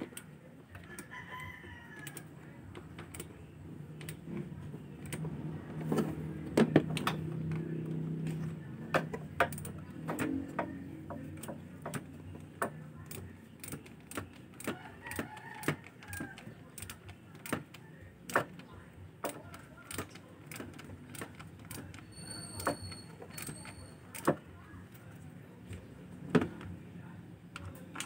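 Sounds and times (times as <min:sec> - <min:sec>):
rooster crowing: 0:00.9 - 0:02.3.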